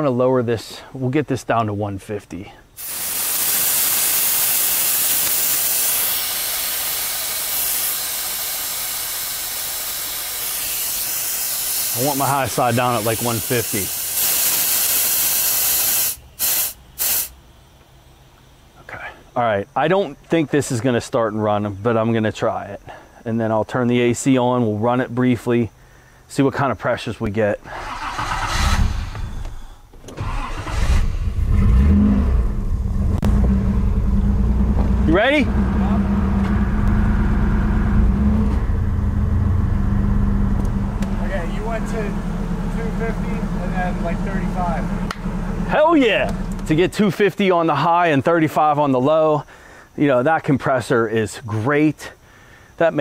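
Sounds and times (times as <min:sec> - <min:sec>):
pressurized gas hissing: 0:02.8 - 0:17.4
engine revving: 0:27.6 - 0:46.9
starter motor cranking engine: 0:27.6 - 0:46.9
car engine running: 0:30.4 - 0:46.9.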